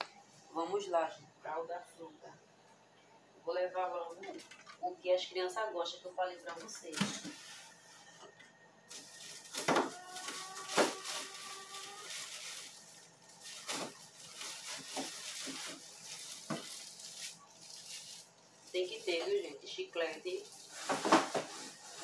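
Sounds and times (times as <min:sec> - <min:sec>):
plastic bags rustling: 0:08.8 - 0:22.0.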